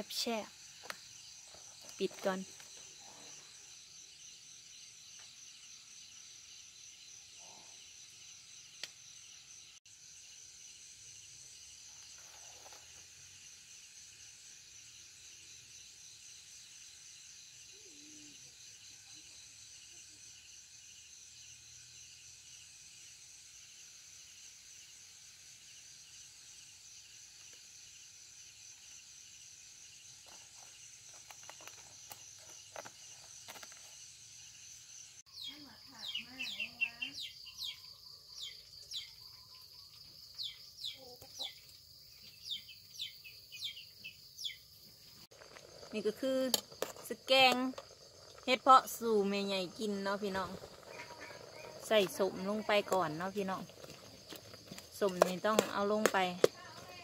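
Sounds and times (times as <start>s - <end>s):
crickets trilling: 0.0s - 57.0s.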